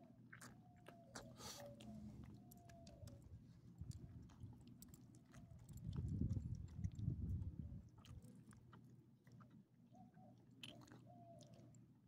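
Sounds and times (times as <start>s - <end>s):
small dog chewing: 0.3s - 9.6s
small mouth clicks: 10.6s - 11.8s.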